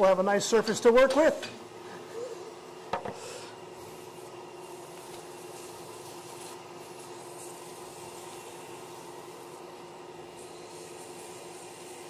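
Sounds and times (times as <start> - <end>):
sandpaper hissing on wood: 3.2 - 12.0.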